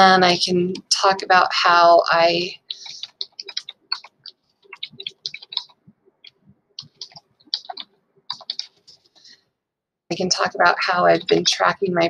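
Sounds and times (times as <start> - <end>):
typing on computer keyboard: 2.7 - 8.8.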